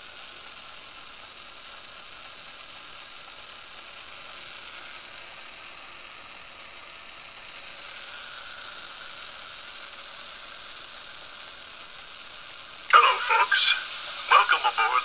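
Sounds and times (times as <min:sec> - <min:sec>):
steam locomotive hiss from small speaker: 0:00.0 - 0:15.0
faint high ticks: 0:00.2 - 0:12.9.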